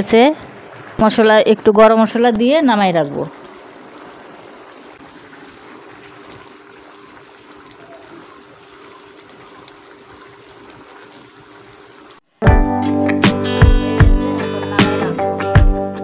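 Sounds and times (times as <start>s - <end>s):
faint steady hum: 0.0s - 12.3s
curry bubbling in a pan: 3.4s - 12.2s.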